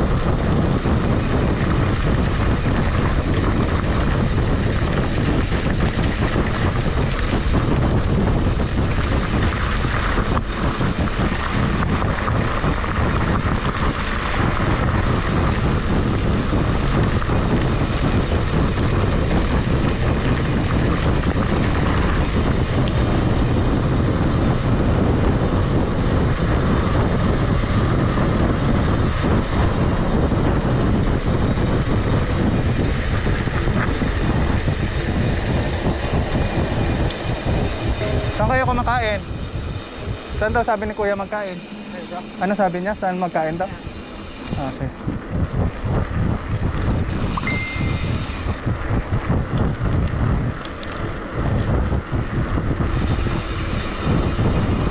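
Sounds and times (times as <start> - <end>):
bike tyre and road noise: 0.0 - 54.9
wind buffeting microphone: 0.0 - 54.9.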